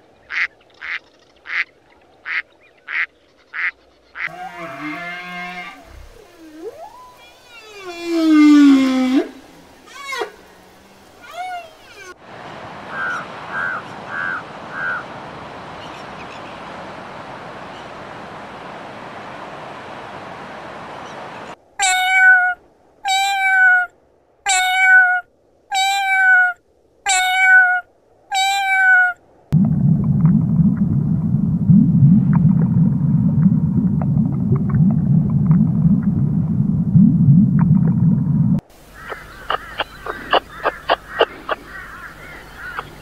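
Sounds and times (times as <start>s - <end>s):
steady hiss: 3.9s - 21.8s, 38.6s - 43.0s
cat meowing: 21.8s - 29.2s
low underwater rumble: 29.6s - 38.6s.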